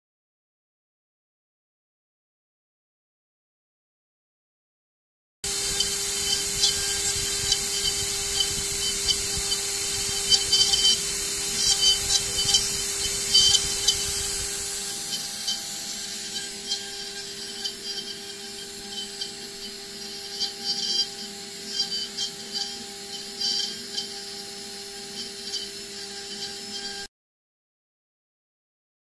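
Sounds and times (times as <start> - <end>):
milling machine spindle hum: 5.4 - 27.1
scratchy cutting noise with crackles: 5.5 - 27.1.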